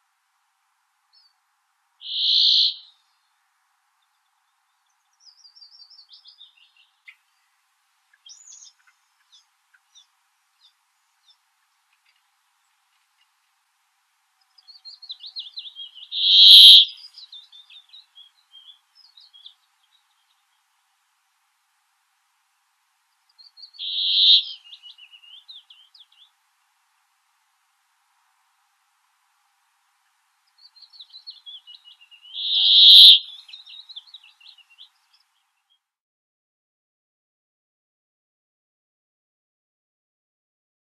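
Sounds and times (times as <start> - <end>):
high bird chirping: 2.0 - 2.9, 14.7 - 18.0, 23.5 - 26.0, 30.6 - 34.7.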